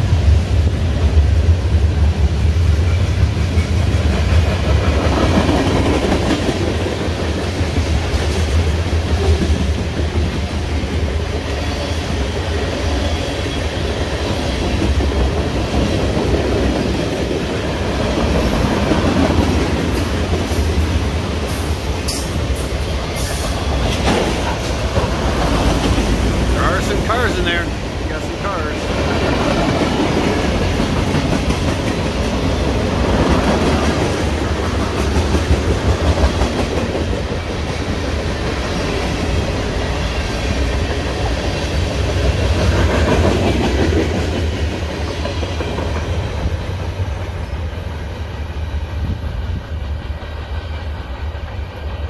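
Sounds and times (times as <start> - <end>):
freight train rumbling: 0.0 - 52.0.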